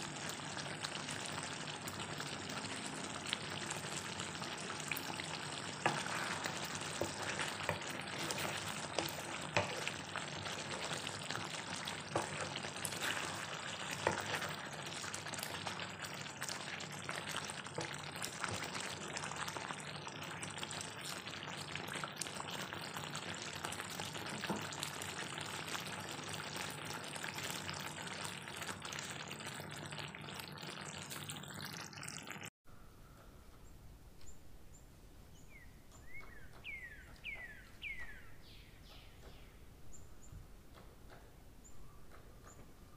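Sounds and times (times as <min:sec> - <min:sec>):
sauce bubbling and sizzling: 0:00.0 - 0:32.5.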